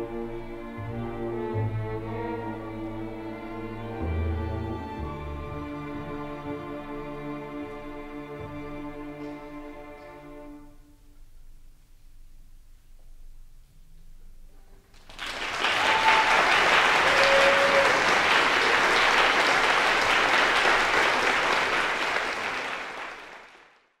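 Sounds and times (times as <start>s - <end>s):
audience applause: 14.9s - 24.0s.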